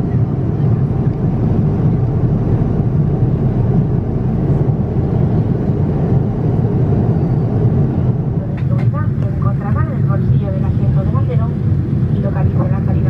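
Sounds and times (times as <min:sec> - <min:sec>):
airliner cabin noise: 0:00.0 - 0:13.0.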